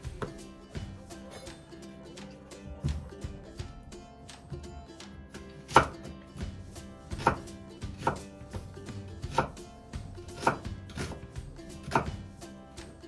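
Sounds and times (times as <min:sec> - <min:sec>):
knife chopping onion on board: 0:00.0 - 0:01.3, 0:05.6 - 0:12.3.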